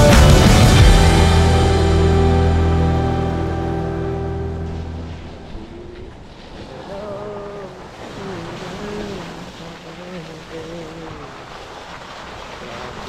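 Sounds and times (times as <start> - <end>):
tyres rolling through slush: 4.8 - 13.0.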